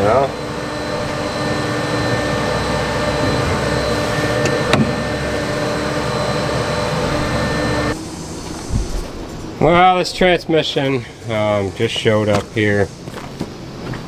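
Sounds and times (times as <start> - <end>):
vehicle engine hum: 0.0 - 9.6.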